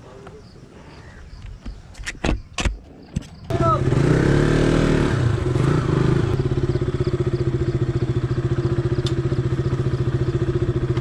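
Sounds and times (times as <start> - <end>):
motorcycle engine at low revs: 2.4 - 11.0.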